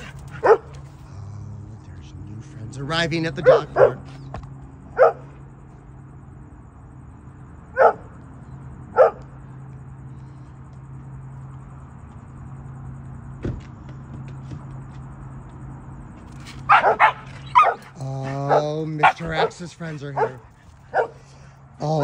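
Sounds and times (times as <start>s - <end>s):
dog barking: 0.0s - 0.9s, 3.4s - 4.1s, 4.9s - 5.4s, 7.7s - 8.1s, 8.9s - 9.3s, 16.7s - 21.2s.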